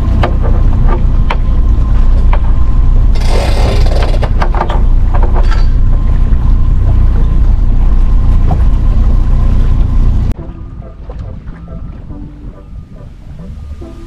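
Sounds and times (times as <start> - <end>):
outboard motor rumbling: 0.0 - 14.0
winch hook and strap rattle: 3.1 - 5.9.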